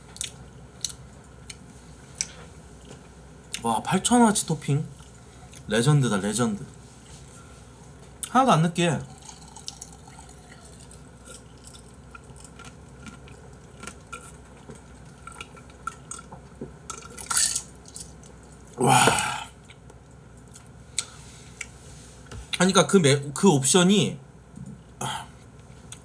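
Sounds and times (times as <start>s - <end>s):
man exclaiming: 18.8s - 19.5s
breathy burst: 18.8s - 19.6s
man drinking: 18.8s - 19.6s.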